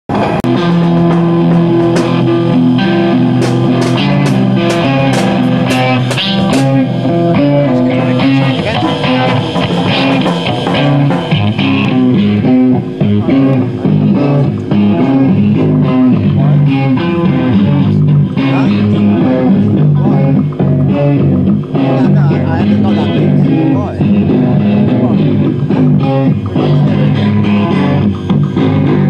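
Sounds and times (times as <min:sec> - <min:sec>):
noise rock music: 0:00.0 - 0:29.0
cymbal strikes: 0:00.5 - 0:16.5.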